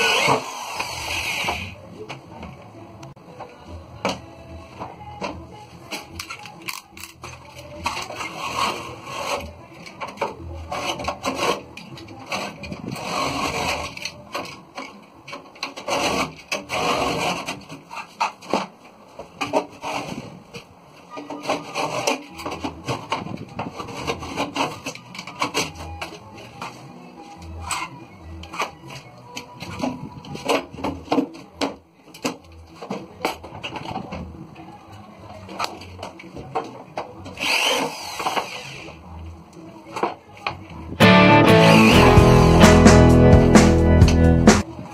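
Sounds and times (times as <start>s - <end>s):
board scraping against steel frame: 15.6s - 18.8s, 21.2s - 26.0s.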